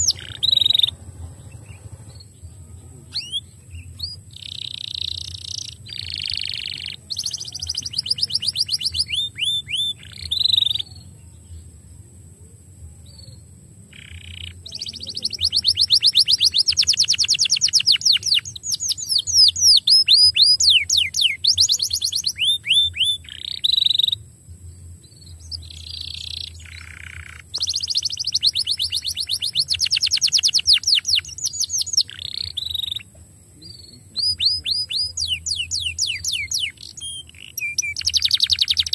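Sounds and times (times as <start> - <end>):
canary singing trills: 0.0 - 11.8, 13.0 - 38.9.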